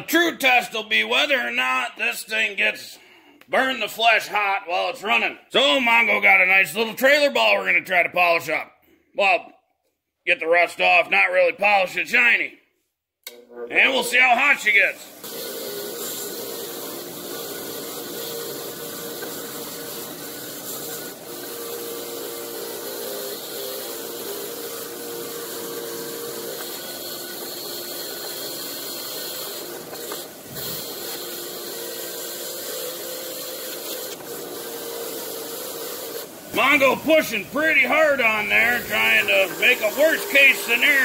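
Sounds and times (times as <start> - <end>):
grinder motor hum: 15.1 - 41.0
wire wheel scrubbing metal: 15.1 - 41.0.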